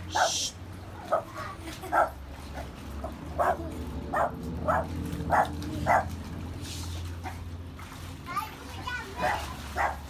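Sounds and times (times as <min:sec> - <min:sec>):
small dog yapping: 0:00.1 - 0:00.5.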